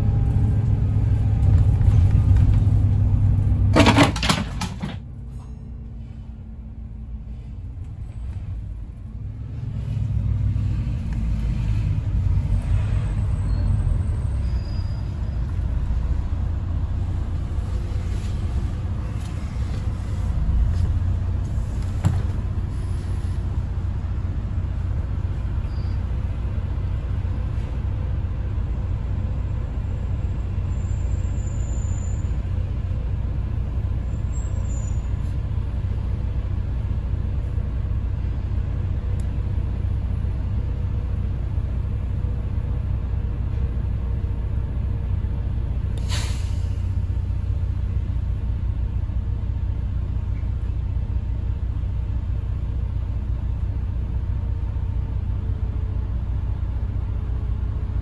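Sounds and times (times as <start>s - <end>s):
bus engine idling: 0.0s - 58.0s
cars passing: 5.1s - 29.2s
short hiss: 46.0s - 46.9s.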